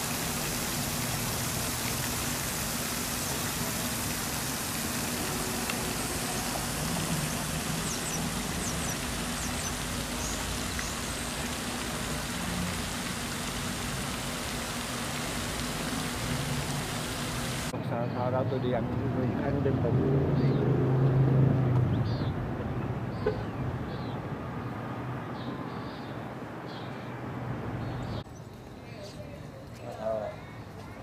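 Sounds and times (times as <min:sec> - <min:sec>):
outdoor background hiss: 0:00.0 - 0:18.3.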